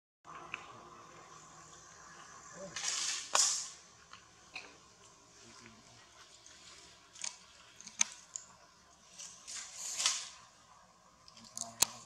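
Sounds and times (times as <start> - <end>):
dry leaves crackling and rustling: 2.6 - 3.8, 9.0 - 10.5.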